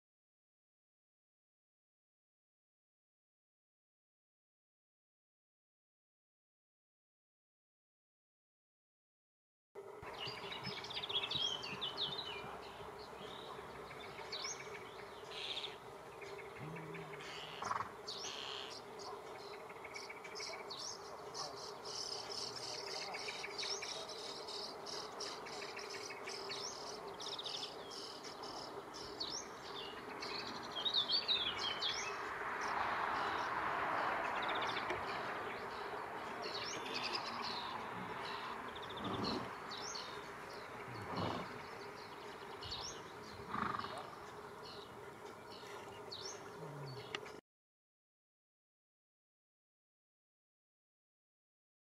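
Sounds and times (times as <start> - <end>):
small birds chirping: 10.1 - 47.4.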